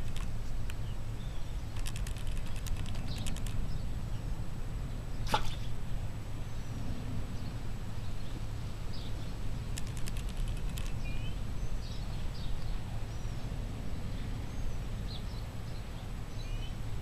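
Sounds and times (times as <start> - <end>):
sharp clicks: 0.0 - 0.8, 1.7 - 3.6, 9.7 - 11.1
small birds chirping: 0.0 - 6.8, 7.4 - 16.8.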